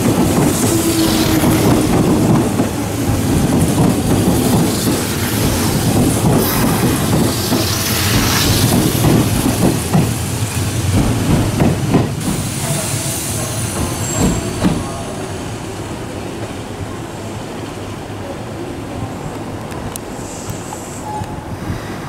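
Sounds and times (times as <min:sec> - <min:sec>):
train wheels knocking over rail joints: 0:00.0 - 0:12.5
train rumbling slowly: 0:00.0 - 0:22.0.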